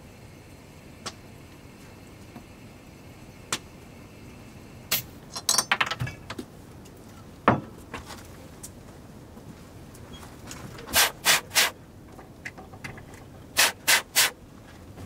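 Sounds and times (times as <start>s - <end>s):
metal clicks and clinks: 5.3s - 6.2s
gas hissing: 10.9s - 11.8s, 13.6s - 14.4s.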